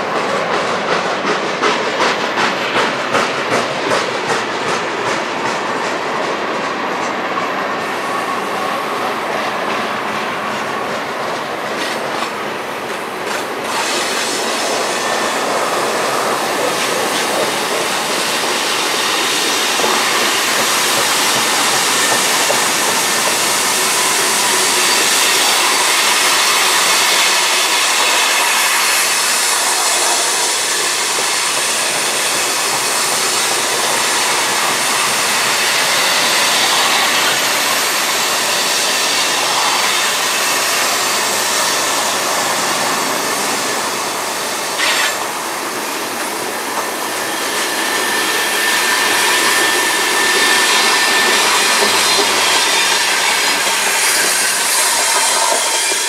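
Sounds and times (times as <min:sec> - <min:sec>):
freight cars rumbling on rails: 0:00.0 - 0:56.0
wheel squeal: 0:44.7 - 0:45.2.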